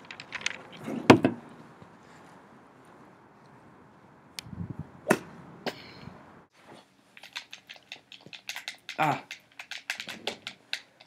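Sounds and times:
golf club swinging through air: 4.4 - 5.9
clubhead striking golf ball: 5.0 - 5.3.

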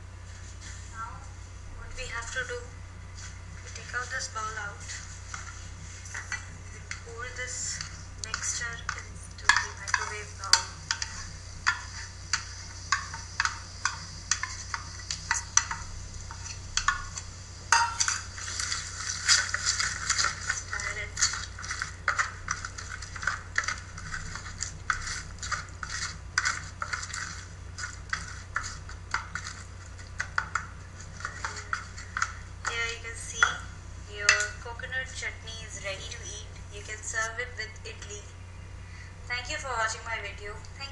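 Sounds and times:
spatula scraping bowl: 3.7 - 33.6.

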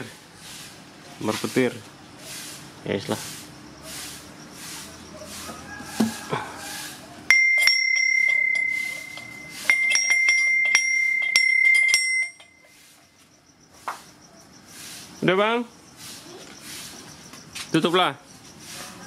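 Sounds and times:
small metal bell clanging: 7.3 - 12.8.

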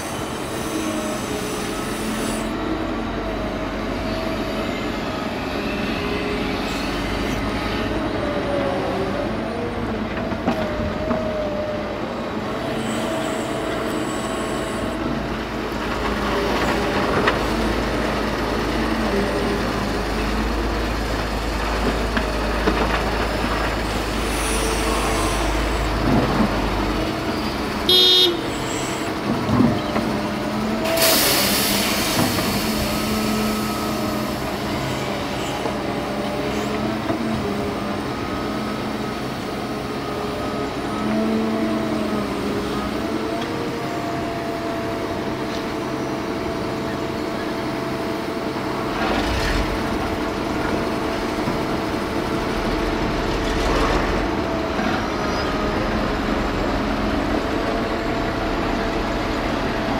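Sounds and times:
dump truck running: 0.0 - 59.9
excavator engine and hydraulics: 0.0 - 59.9
horn toot: 27.9 - 28.6.

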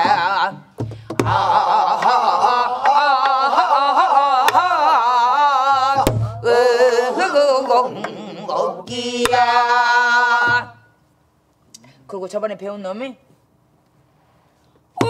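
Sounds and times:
group singing folk song: 0.0 - 11.0.

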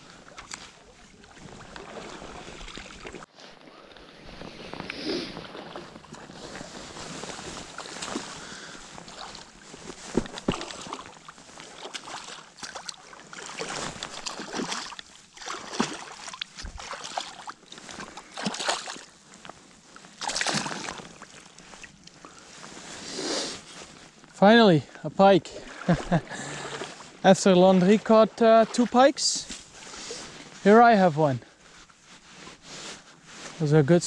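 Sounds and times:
fish splashing in water: 10.2 - 17.6, 20.2 - 21.2.

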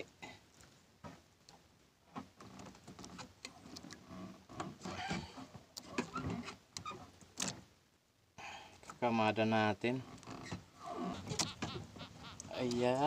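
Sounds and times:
short squeaks: 10.1 - 12.6.

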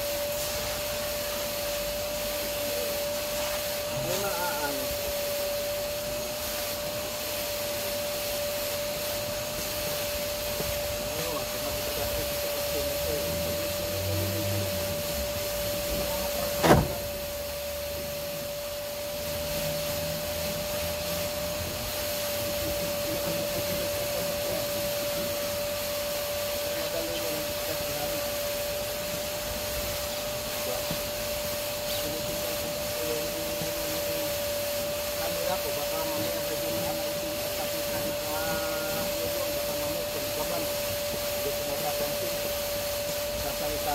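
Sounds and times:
vacuum cleaner whining: 0.0 - 43.9
sharp knock: 16.6 - 17.0.

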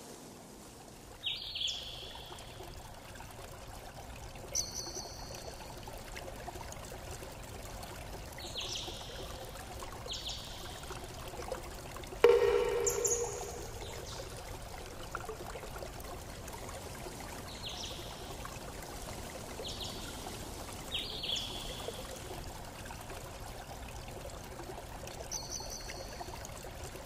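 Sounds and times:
background hiss: 0.0 - 6.6
high metallic pings: 12.2 - 14.4.

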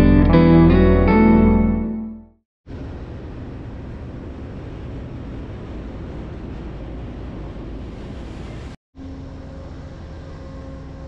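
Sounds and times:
train rumbling and hissing: 2.7 - 11.0.

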